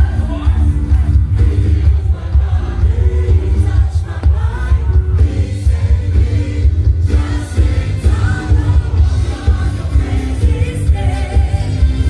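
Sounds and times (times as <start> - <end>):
song over loudspeaker: 0.0 - 12.0.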